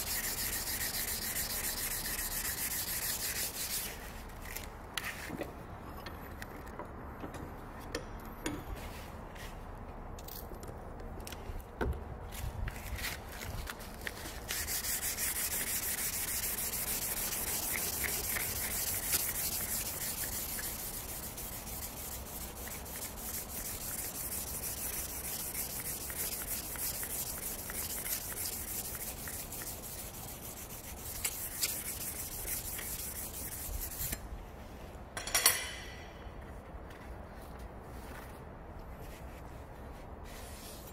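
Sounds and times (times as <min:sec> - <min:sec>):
abrasive block sanding steel blade: 0:00.0 - 0:04.1, 0:14.2 - 0:34.2
sharp metallic clink: 0:35.2 - 0:36.3.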